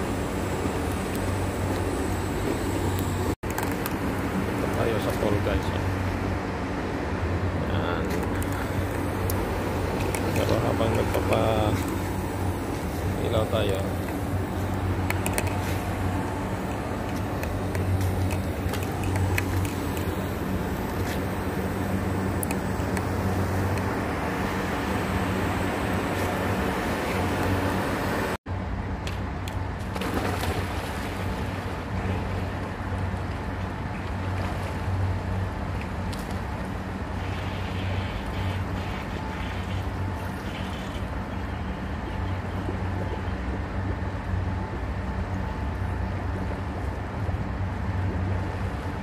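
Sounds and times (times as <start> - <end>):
city traffic rumble: 0.0 - 49.0
water splashing: 29.8 - 32.7.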